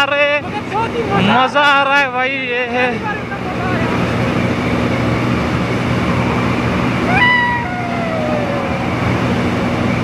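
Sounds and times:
wind and road noise: 0:00.0 - 0:10.0
high voice-like call: 0:07.1 - 0:09.1
low tone sliding down: 0:07.1 - 0:09.9.

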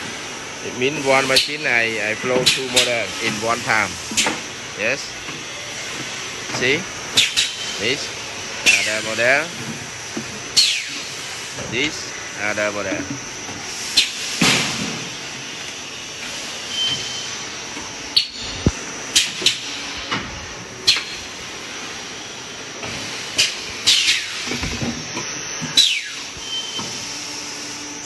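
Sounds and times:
hissing blasts of air: 0:00.0 - 0:17.8
machine steady hiss: 0:00.0 - 0:28.0.

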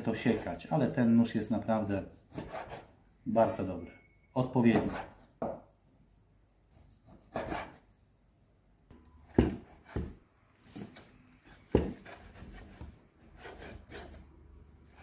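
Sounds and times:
knife chopping on wooden board: 0:09.2 - 0:14.2.

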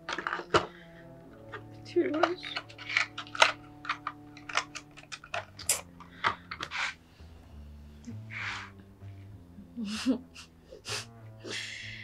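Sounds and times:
soft background music: 0:00.0 - 0:12.0
soft breath-like hiss: 0:08.1 - 0:08.8.

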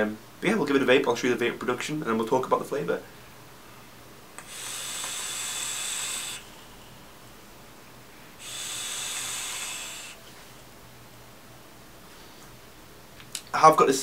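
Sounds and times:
hiss of air through vape coils: 0:04.4 - 0:07.0, 0:08.4 - 0:10.6.

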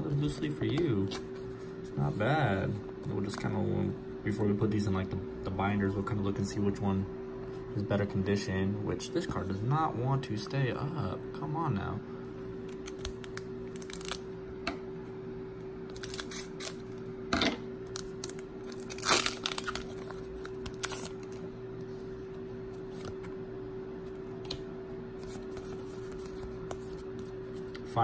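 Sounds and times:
steady low hum: 0:00.0 - 0:28.0
foil wrapper crinkling and tearing: 0:12.7 - 0:14.2, 0:15.9 - 0:17.0, 0:17.9 - 0:21.4.

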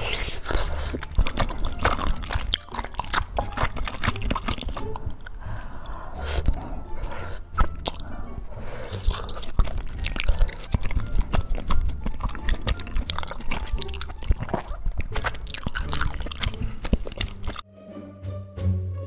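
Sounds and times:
wet chewing and smacking: 0:00.0 - 0:17.6
background music: 0:00.0 - 0:19.0.

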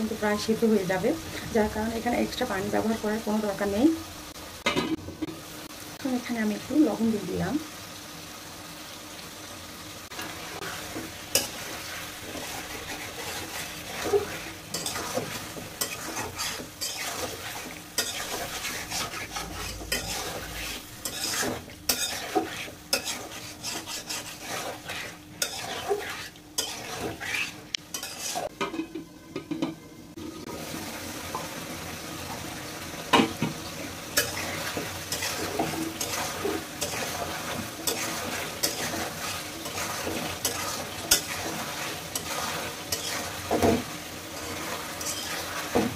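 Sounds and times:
chicken sizzling in hot oil: 0:00.0 - 0:45.9
metal spatula scraping pan: 0:10.2 - 0:28.9, 0:34.2 - 0:45.9.

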